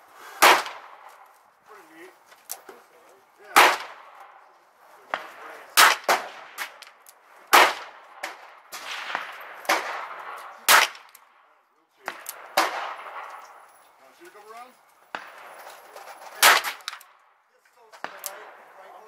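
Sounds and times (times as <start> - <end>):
distant quieter gunshots: 0.2 - 1.3, 3.4 - 13.9, 15.0 - 19.0
revolver gunshots with echo: 0.4 - 1.2, 3.4 - 13.8, 15.0 - 15.6, 16.4 - 17.3, 18.0 - 19.0.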